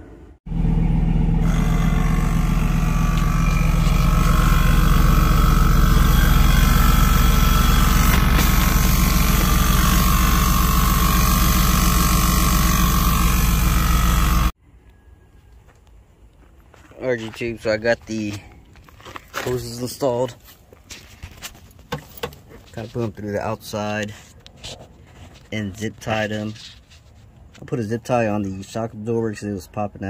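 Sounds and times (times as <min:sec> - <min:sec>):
motor drone with low hum: 0:00.5 - 0:14.6.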